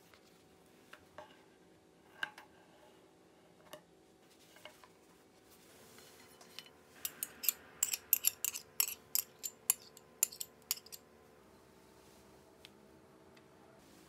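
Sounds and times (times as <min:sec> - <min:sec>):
metal spoon scraping glass bowl: 0:06.4 - 0:11.0.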